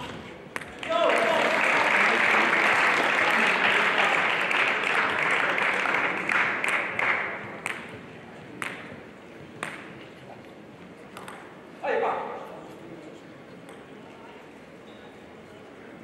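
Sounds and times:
audience applause: 0.8 - 7.4.

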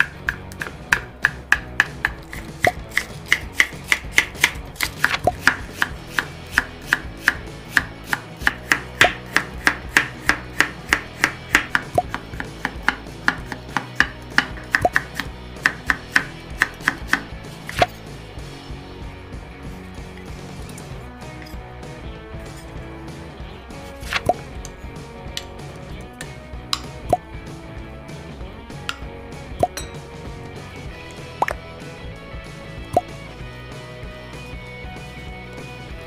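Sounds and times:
knife chopping on wooden board: 0.0 - 17.9, 24.0 - 24.4.

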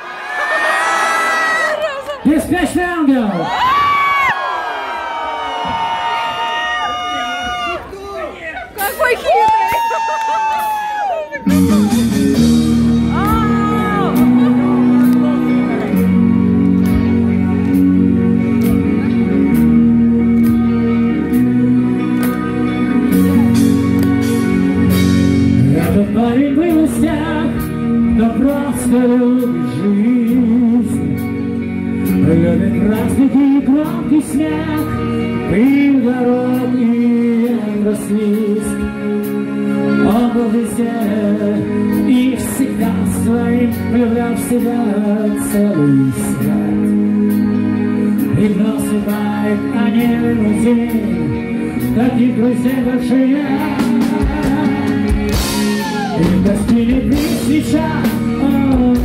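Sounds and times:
rock band playing a ballad: 8.8 - 59.0
man singing lead vocal: 11.4 - 16.2, 25.0 - 59.0.

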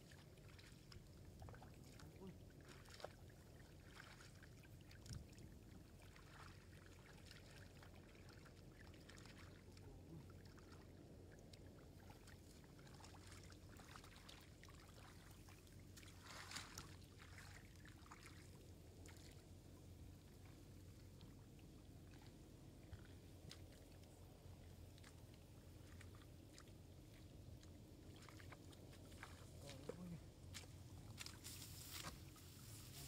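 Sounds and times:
shallow water splashing and trickling: 0.0 - 33.0.

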